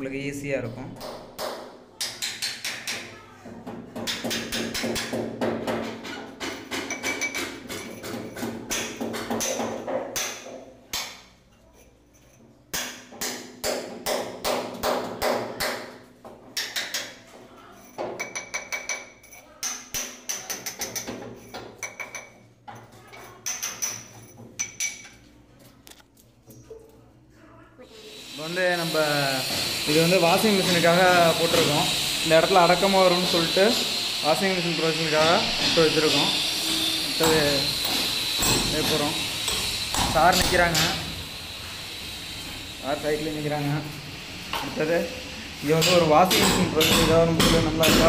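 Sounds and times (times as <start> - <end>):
hammer striking chisel on masonry: 1.0 - 11.3, 12.7 - 17.2, 18.0 - 22.4, 28.8 - 34.4, 35.2 - 41.2, 45.6 - 48.0.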